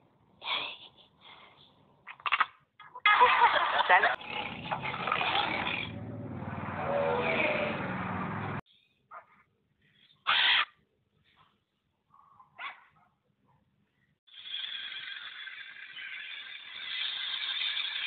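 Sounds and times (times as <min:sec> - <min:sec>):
macaw squawks: 0:10.2 - 0:10.8.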